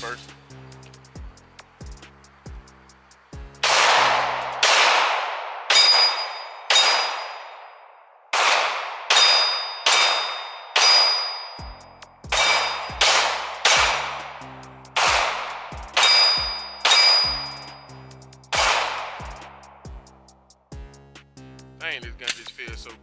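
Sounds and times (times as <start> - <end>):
pistol shots: 3.6 - 11.6, 12.3 - 14.4, 15.0 - 17.5, 18.5 - 19.4
steel targets ringing: 5.6 - 8.1, 9.1 - 14.1, 16.0 - 18.0.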